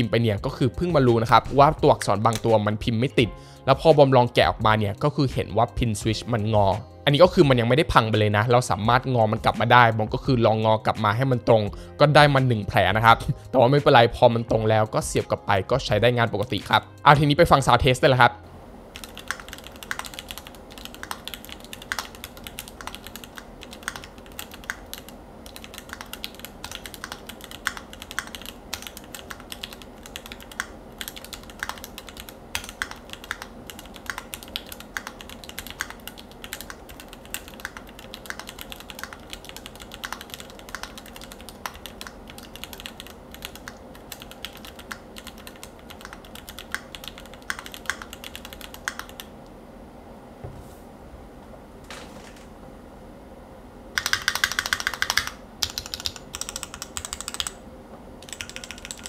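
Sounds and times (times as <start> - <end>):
mechanical keyboard typing: 19.0 - 49.3, 54.0 - 57.6, 58.2 - 59.0.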